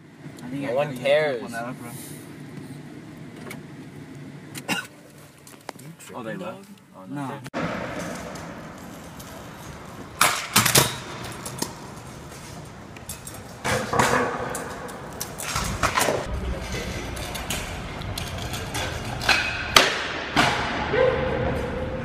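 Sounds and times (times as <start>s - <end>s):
scooter wheels rolling on concrete: 7.6s - 19.5s
scooter clacking on ground: 7.6s - 19.6s.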